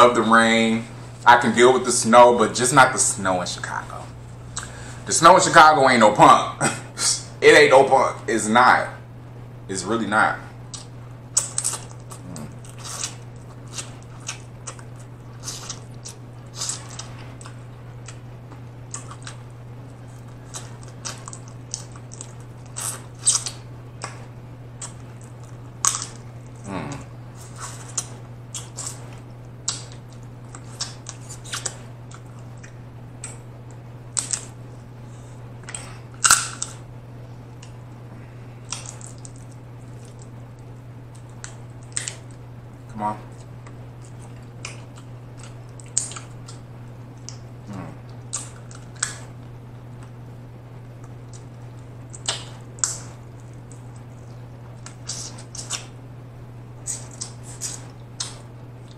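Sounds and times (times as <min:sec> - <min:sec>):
steady low hum: 0:00.0 - 0:58.9
crab shell crunching and cracking: 0:10.7 - 0:24.2, 0:24.8 - 0:34.6, 0:35.6 - 0:36.8, 0:38.6 - 0:42.4, 0:48.1 - 0:50.2
chewing: 0:10.7 - 0:34.6, 0:38.6 - 0:42.4, 0:43.3 - 0:50.2, 0:56.8 - 0:58.9.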